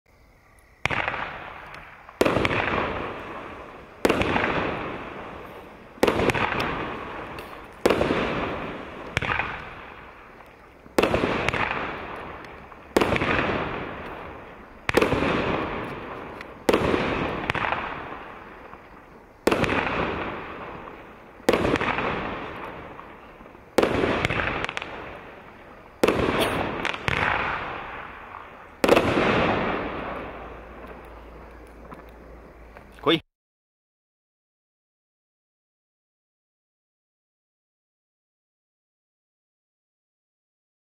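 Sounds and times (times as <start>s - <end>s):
firework shots banging: 0.8s - 32.1s.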